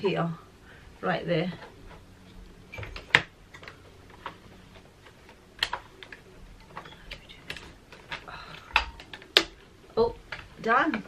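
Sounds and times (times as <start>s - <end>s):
hard plastic parts clicking: 2.8s - 11.0s.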